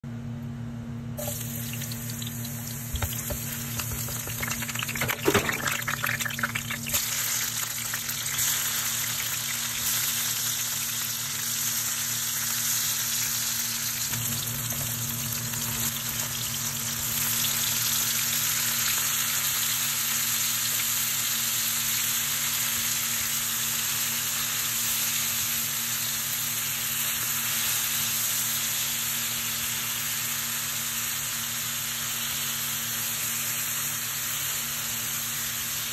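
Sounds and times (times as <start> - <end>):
food sizzling in oil: 1.2 - 35.9
utensil knocks and clatter: 2.9 - 5.8.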